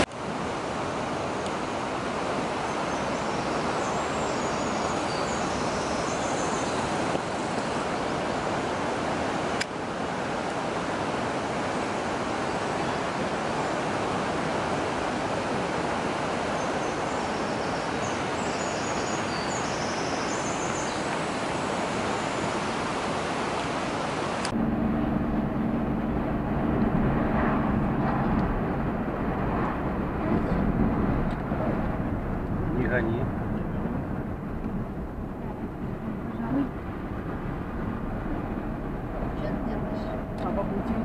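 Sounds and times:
river water rushing: 0.0 - 41.0
vehicle engine humming: 24.4 - 41.0.

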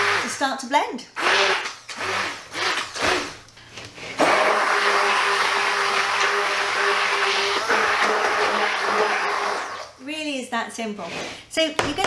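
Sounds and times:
stick blender humming: 0.0 - 0.4, 1.2 - 3.4, 4.1 - 9.9.

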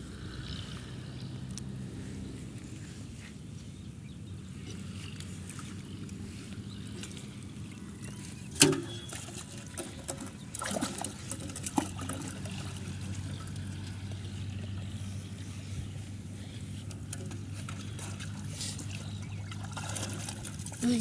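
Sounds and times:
water splashing and trickling: 4.5 - 21.0.

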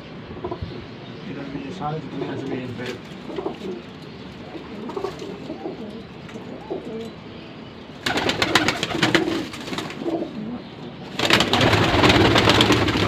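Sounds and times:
pigeons cooing: 0.0 - 13.0
wings flapping and rustling: 2.7 - 7.1, 8.0 - 10.4, 11.1 - 13.0.

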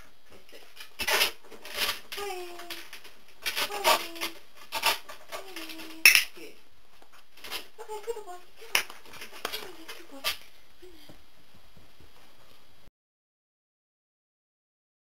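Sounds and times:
wobble board rubbing and scraping: 0.7 - 6.0.

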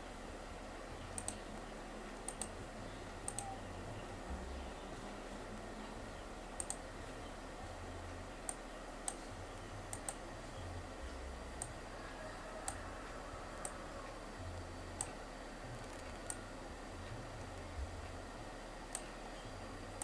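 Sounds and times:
faint steady hiss: 0.0 - 20.0
computer mouse clicking: 1.1 - 2.6, 3.2 - 3.6, 6.6 - 6.9, 8.4 - 9.3, 9.9 - 10.2, 13.5 - 15.2, 15.8 - 16.5, 18.9 - 19.2.

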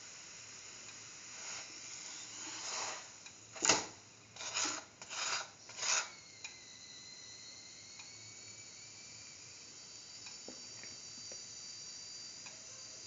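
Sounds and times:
flatbread scraping on metal pan: 4.4 - 6.1.

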